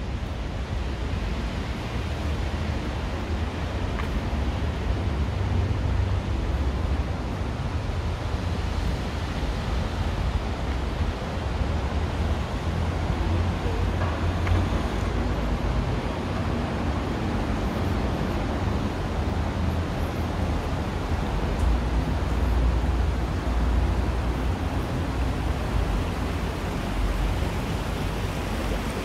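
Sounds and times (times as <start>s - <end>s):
steady rushing outdoor noise: 0.0s - 29.0s.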